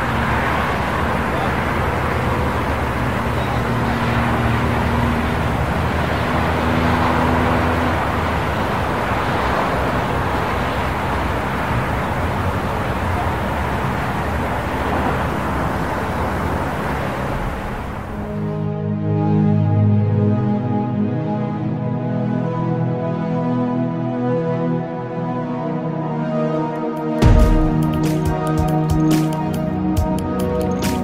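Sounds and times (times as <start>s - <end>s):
city traffic din: 0.0s - 18.9s, 26.5s - 31.0s
low hum: 0.0s - 19.3s, 27.2s - 28.9s.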